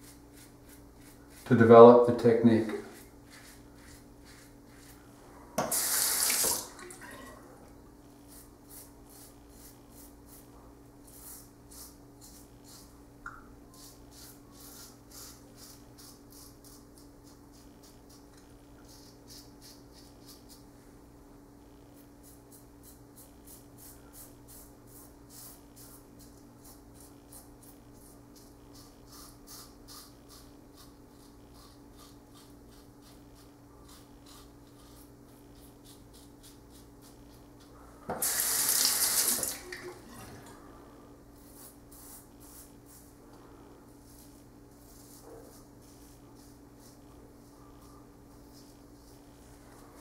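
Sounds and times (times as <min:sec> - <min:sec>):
razor scraping stubble: 0:22.2 - 0:37.5
tap running: 0:38.1 - 0:40.0.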